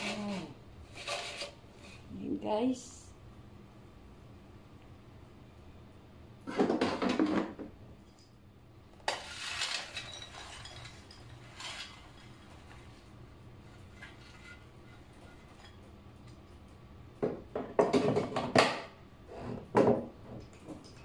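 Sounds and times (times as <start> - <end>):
air fryer basket and fries clattering: 6.4 - 8.3, 8.9 - 19.0.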